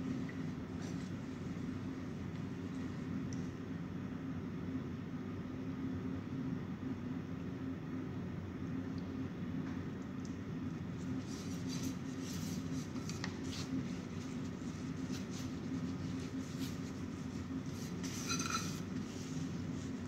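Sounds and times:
low machine hum: 0.0 - 20.0
pan ringing clink: 18.2 - 18.8.

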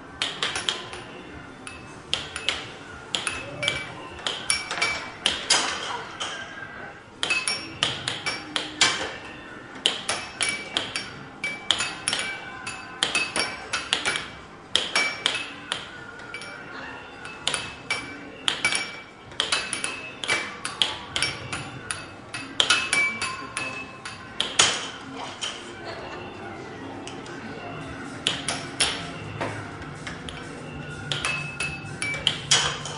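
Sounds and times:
air hockey puck clacking: 0.2 - 1.1, 1.7 - 6.2, 7.2 - 9.2, 9.8 - 16.5, 17.2 - 25.0, 28.2 - 29.5, 30.2 - 32.9.

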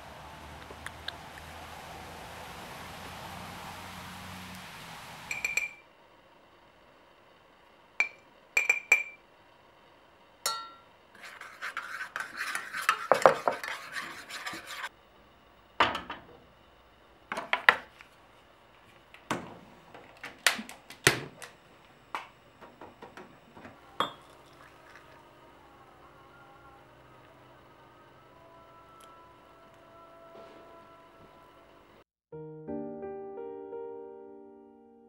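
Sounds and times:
metal spoon clinking on pot: 5.3 - 5.8, 8.0 - 9.2, 10.4 - 10.8, 24.0 - 24.4
spoon stirring and scraping metal: 10.5 - 14.9.

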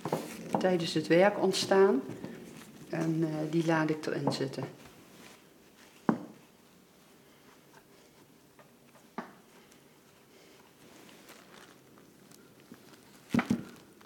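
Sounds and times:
objects knocking on a work table: 6.1 - 6.4.

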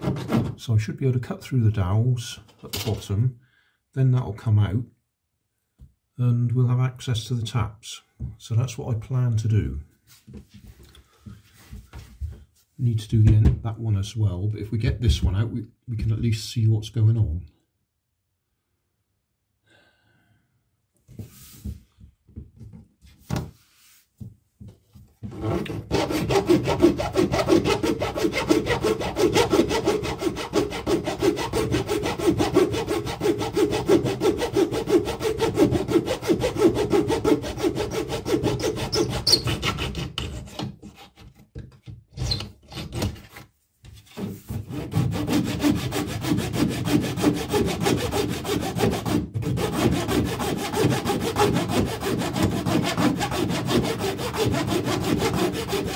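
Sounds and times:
hand saw cutting wood: 0.0 - 0.6, 25.2 - 41.4, 42.2 - 43.5, 44.1 - 55.9.

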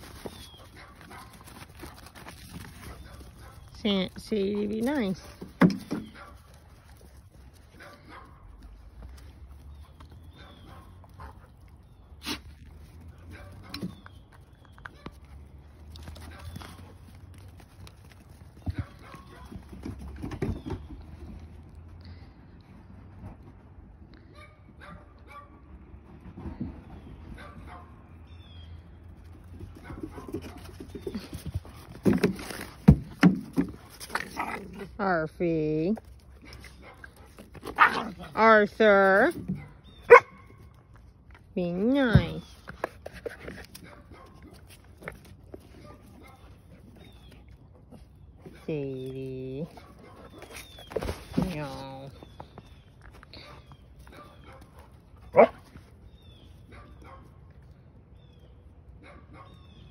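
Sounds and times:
dogs scuffling: 0.0 - 21.5, 29.0 - 35.0, 49.7 - 56.6
dogs barking: 7.8 - 8.5, 36.8 - 38.2, 39.6 - 40.5, 53.4 - 55.7, 56.7 - 57.4, 59.0 - 59.6
dogs play noises: 29.4 - 35.1, 36.0 - 41.6.

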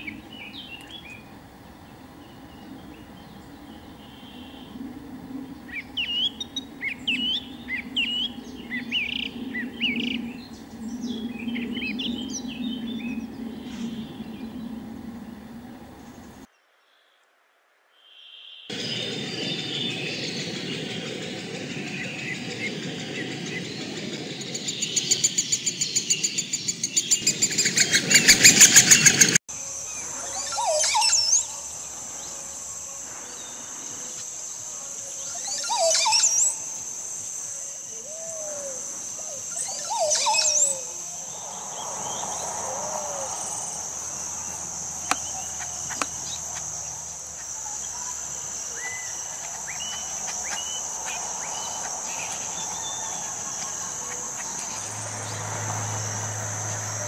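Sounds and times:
bird gurgling song: 0.0 - 16.5, 18.7 - 29.4
faint chirps: 0.0 - 16.5, 18.0 - 57.0
high insect drone: 0.0 - 16.5, 18.7 - 57.0.

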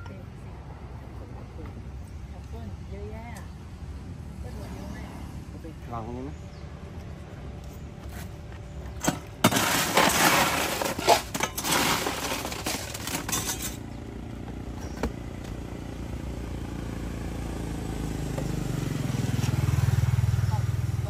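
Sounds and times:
passing vehicle engine hum: 0.0 - 9.0, 13.6 - 21.0.

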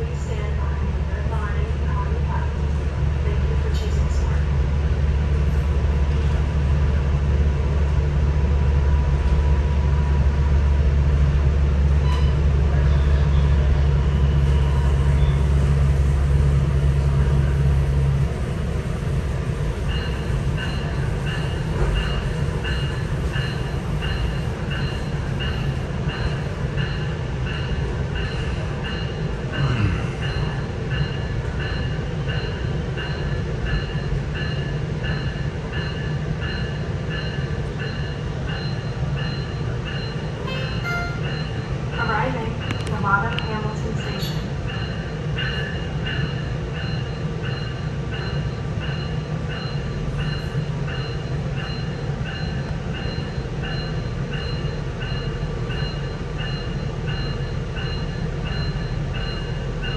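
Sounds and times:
train engine drone: 0.0 - 59.9
train running noise: 0.0 - 59.9
bell ringing: 35.9 - 59.9.

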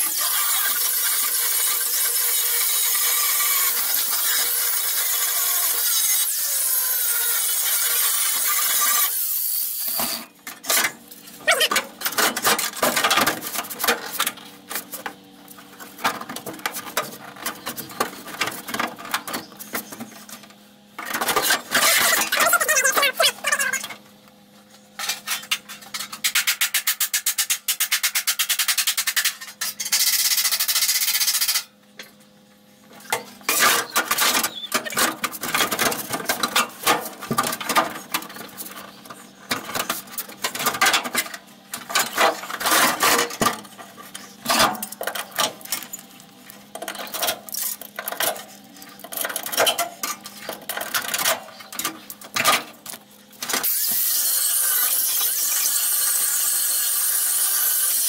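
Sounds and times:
rotary tool cutting steel: 0.0 - 10.3, 26.2 - 31.7, 53.6 - 58.0.

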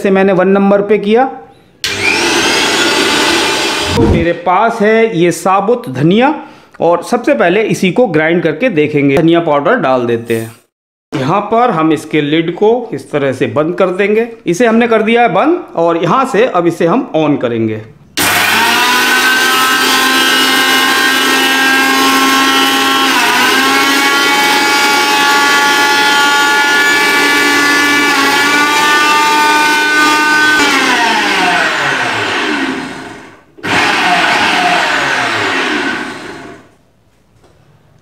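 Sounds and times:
mixer grinder motor whining: 1.8 - 4.3, 18.2 - 36.8.

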